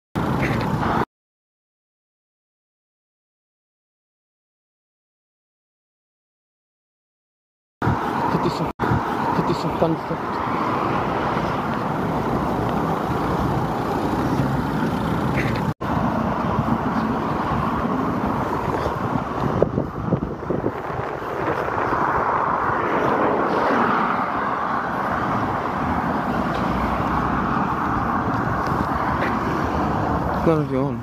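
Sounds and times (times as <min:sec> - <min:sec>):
car and road traffic noise: 0:00.2 - 0:01.1, 0:07.8 - 0:31.0.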